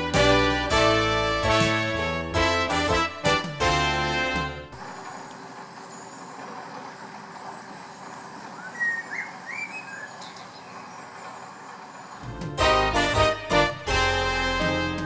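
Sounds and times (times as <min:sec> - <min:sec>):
boat engine humming: 0:00.0 - 0:15.0
bird chirps: 0:07.5 - 0:12.2.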